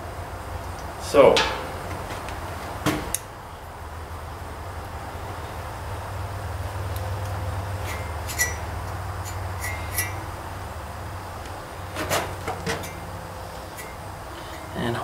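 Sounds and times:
steady low hum: 0.0s - 15.0s
metal scrapes: 7.8s - 10.3s.

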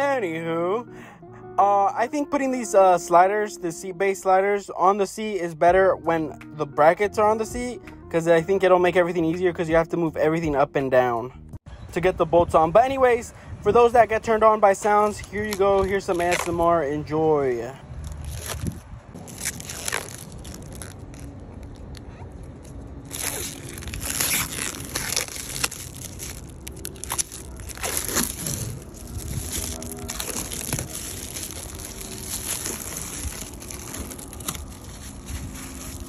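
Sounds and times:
plastic film peeling and crinkling: 14.8s - 16.8s, 18.0s - 36.0s.

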